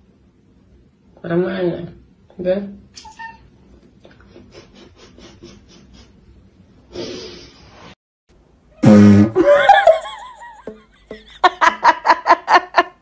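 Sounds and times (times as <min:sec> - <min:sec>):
person laughing: 0:04.1 - 0:06.2, 0:09.2 - 0:13.0.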